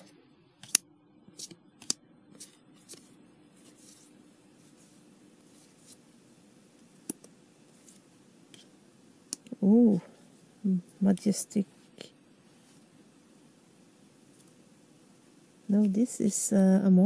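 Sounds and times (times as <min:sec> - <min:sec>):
cards sliding and rustling: 0:00.6 - 0:06.1.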